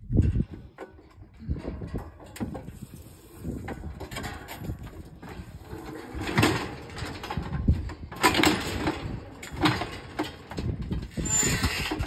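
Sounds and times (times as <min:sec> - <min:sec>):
metal cattle chute clanking: 0:00.2 - 0:12.0.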